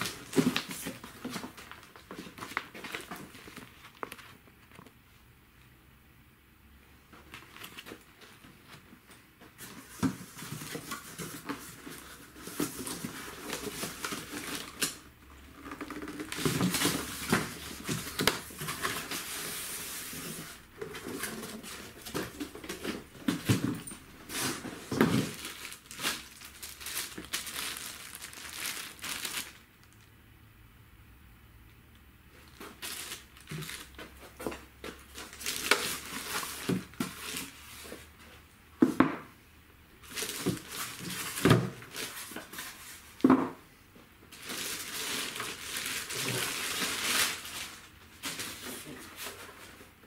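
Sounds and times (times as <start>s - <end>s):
plastic bag crinkling: 0.0s - 4.9s, 9.9s - 30.1s, 32.4s - 34.2s, 35.0s - 37.7s, 40.0s - 42.8s, 44.3s - 49.0s
polystyrene packing rubbing: 24.2s - 29.6s, 44.4s - 49.3s.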